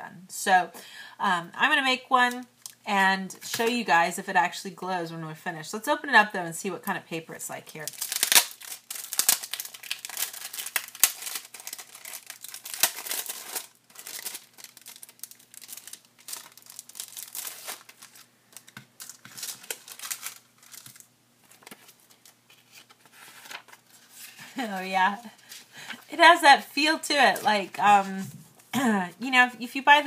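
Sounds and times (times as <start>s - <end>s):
plastic wrapper crinkling: 7.8s - 26.1s.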